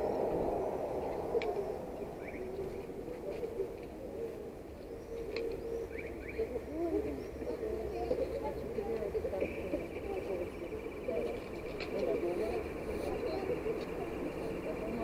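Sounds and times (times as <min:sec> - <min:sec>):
distant traffic hum: 0:00.0 - 0:15.0
small birds chirping: 0:00.0 - 0:15.0.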